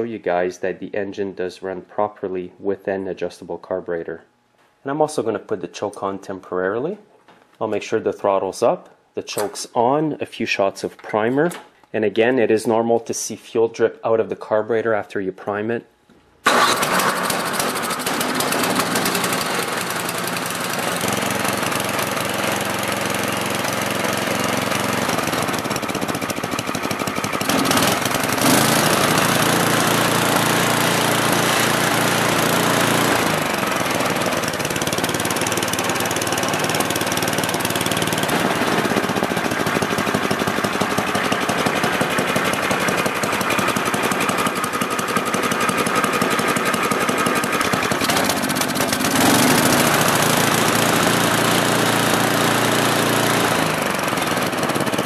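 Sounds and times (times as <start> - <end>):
snowblower engine running: 16.4 - 55.0.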